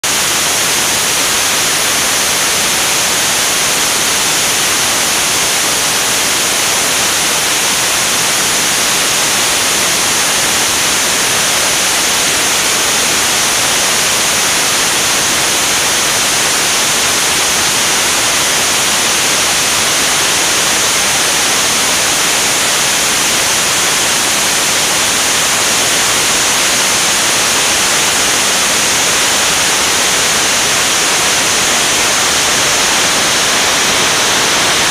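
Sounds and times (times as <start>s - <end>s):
loud rush of airflow: 17.6s - 34.9s.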